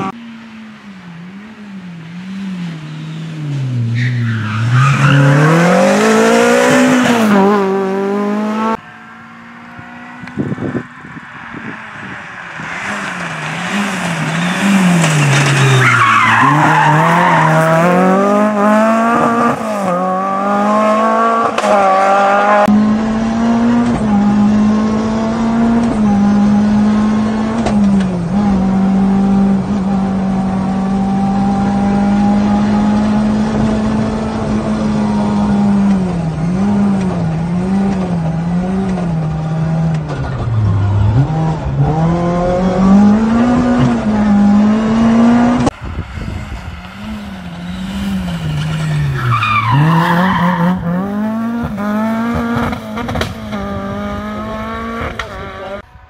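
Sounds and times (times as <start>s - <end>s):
rally car engine revving: 0.8s - 55.9s
tyres skidding on gravel: 11.6s - 20.1s, 46.0s - 53.4s.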